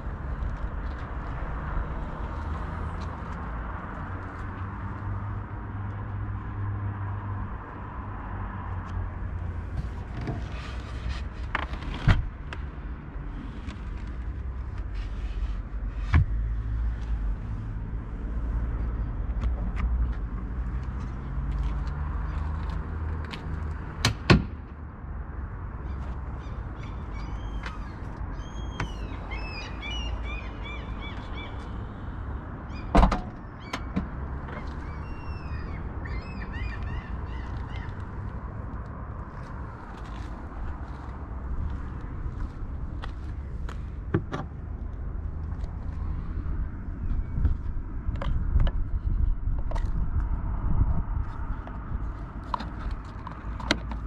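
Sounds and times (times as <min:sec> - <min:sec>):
low outdoor rumble: 0:24.6 - 0:54.0
birds chirping: 0:25.8 - 0:31.9, 0:34.5 - 0:38.0.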